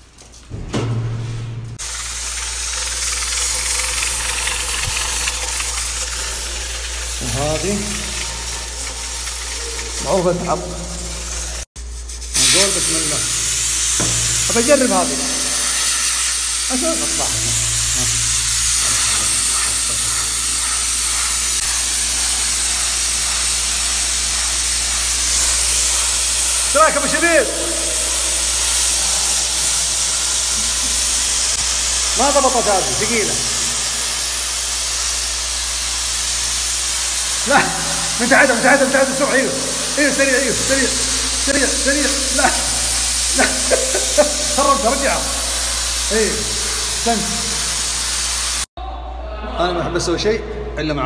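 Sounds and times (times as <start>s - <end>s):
low hum: 0.4s - 7.1s
pressure cooker hissing steam: 1.8s - 48.8s.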